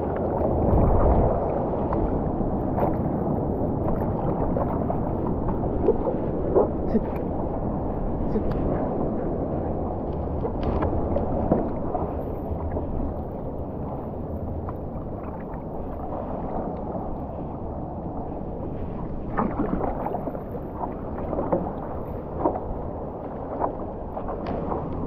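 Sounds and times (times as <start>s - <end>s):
paddle strokes splashing: 0.0s - 25.0s
water sloshing and splashing: 0.0s - 25.0s
wind on microphone: 0.0s - 25.0s.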